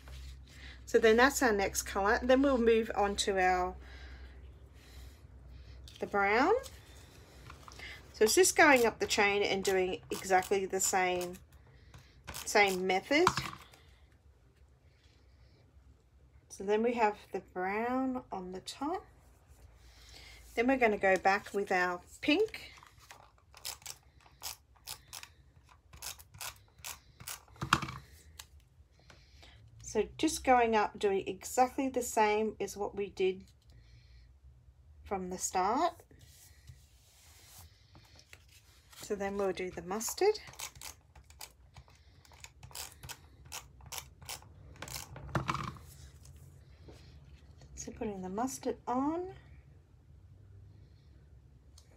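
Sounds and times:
tape dispenser clicking and ratcheting: 23.5s - 27.9s, 40.5s - 41.6s, 42.3s - 45.5s.

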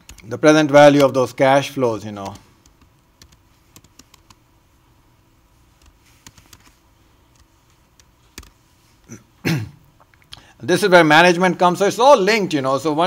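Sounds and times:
computer keyboard keystrokes: 0.0s - 0.3s, 2.2s - 4.4s, 5.8s - 6.7s, 7.3s - 8.6s.

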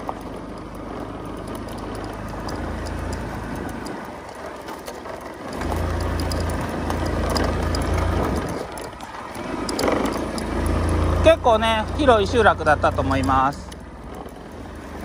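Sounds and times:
tyres rolling over dirt track: 0.0s - 15.0s
wind rumble on microphone: 6.1s - 10.6s.

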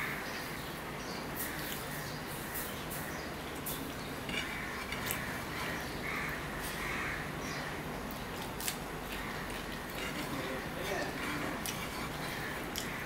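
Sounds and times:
fingers mixing food on a plate: 3.6s - 6.8s, 8.1s - 13.0s.

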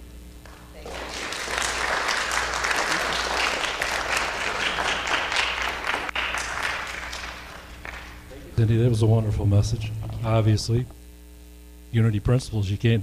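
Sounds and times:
audience applause: 0.4s - 8.6s.

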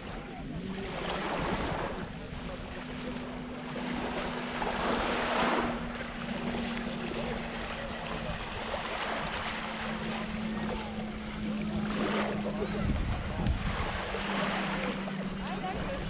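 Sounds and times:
small waves lapping on shore: 0.0s - 16.0s
wind noise on microphone: 12.6s - 14.1s.

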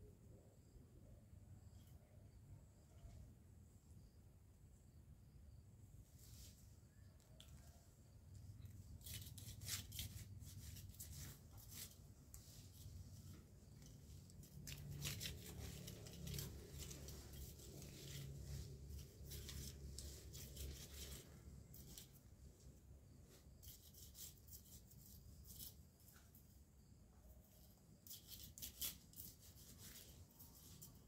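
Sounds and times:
grass rustling and tearing: 13.8s - 22.1s.

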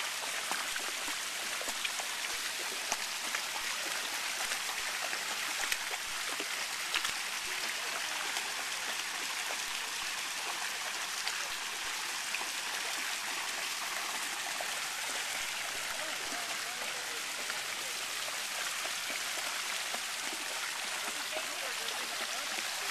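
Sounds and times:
fountain water pouring into pool: 0.0s - 22.9s
dog splashing through water: 0.4s - 11.4s.

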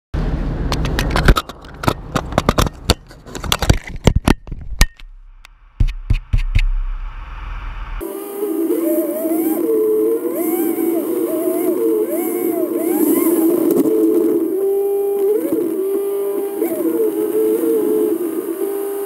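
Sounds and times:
low steady hum: 0.2s - 19.0s
camera housing clicks and scrapes: 0.8s - 5.0s.

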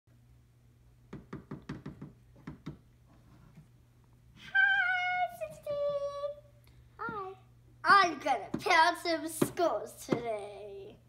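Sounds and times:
plastic dolls knocking on wood: 1.1s - 2.8s.

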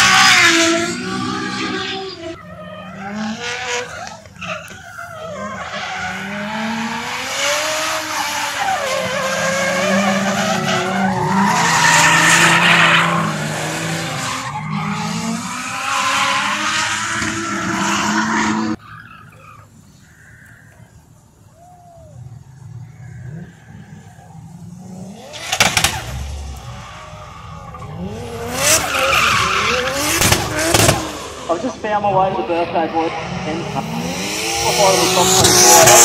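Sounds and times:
tyres screeching: 0.0s - 7.2s, 7.8s - 20.8s, 25.1s - 31.6s
car engine revving: 0.0s - 18.8s, 22.4s - 36.0s.

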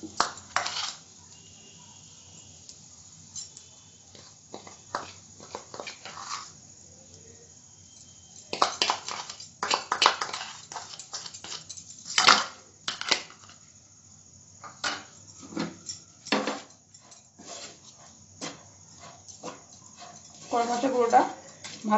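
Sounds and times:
utensil scraping non-stick pan: 0.2s - 1.0s, 4.1s - 6.6s, 8.5s - 12.2s, 16.4s - 21.8s.

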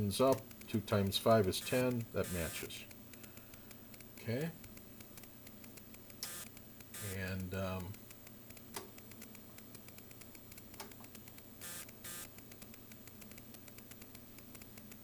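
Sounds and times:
faint crackling ticks: 0.0s - 15.0s
low electrical hum: 0.0s - 15.0s.

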